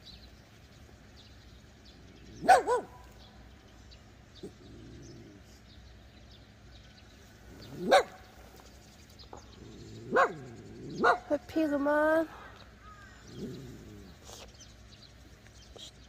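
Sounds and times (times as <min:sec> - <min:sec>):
dog barking: 0:02.4 - 0:03.2, 0:07.7 - 0:08.3, 0:10.1 - 0:11.4.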